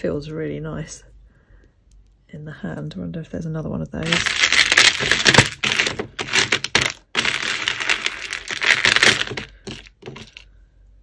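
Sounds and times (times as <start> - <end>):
jewellery clattering and jingling: 4.0 - 10.5.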